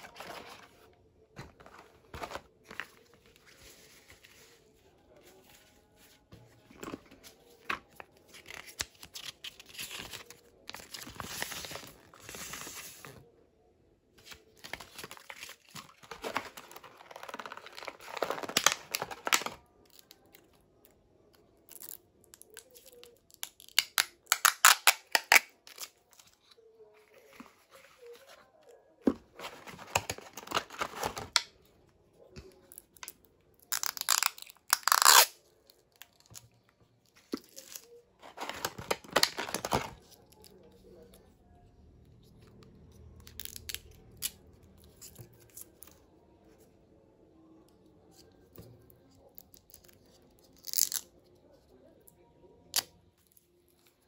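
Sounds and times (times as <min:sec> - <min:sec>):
packaging rustling: 0:14.4 - 0:19.6, 0:29.1 - 0:31.4, 0:37.6 - 0:40.0.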